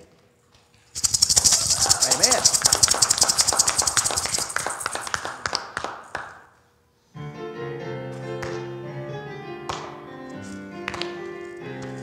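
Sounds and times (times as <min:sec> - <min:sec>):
congregation rattling and clapping: 0:01.0 - 0:06.5.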